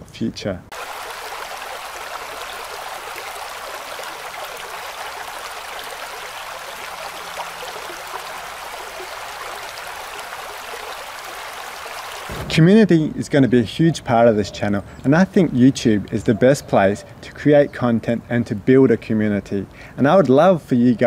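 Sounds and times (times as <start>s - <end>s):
creek water trickling over rocks: 0.7s - 12.3s.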